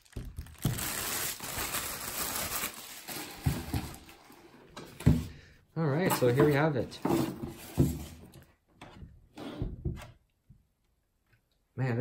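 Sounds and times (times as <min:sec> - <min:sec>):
plastic bag crinkling: 0:00.0 - 0:04.2.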